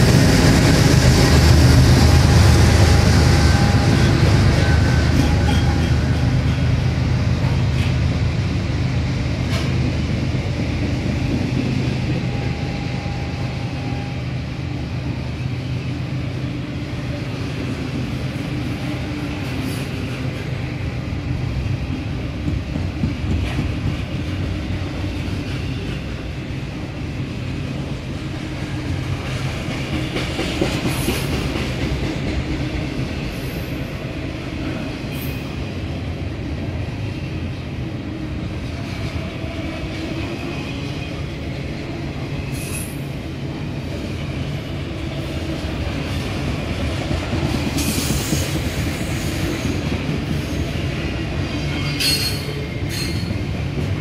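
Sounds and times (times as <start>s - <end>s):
train wheels rumbling on rails: 0.0s - 54.0s
high-pitched wheel squeals: 51.8s - 53.4s.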